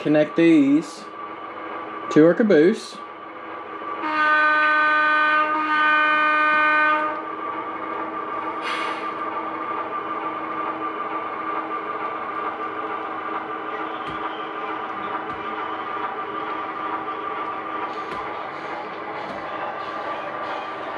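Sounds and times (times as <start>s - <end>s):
model train horn blasts: 4.0s - 7.2s
short hiss of air: 8.6s - 9.2s.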